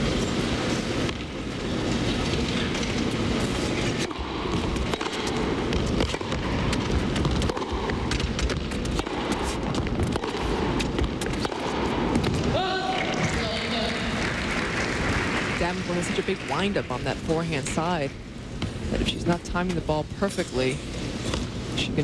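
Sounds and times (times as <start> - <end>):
crowd noise hum: 0.0 - 22.0
players' footwork: 0.0 - 22.0
racket striking ball: 3.6 - 13.3.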